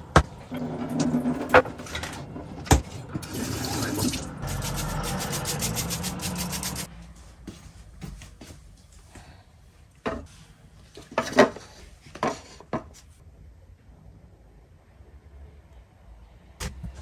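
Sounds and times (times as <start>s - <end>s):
water splashing in sink: 3.1s - 6.9s.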